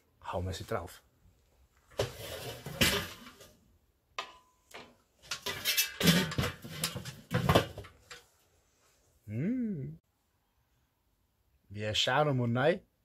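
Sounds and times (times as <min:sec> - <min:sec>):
metal pizza tray scraping: 0:02.0 - 0:03.5.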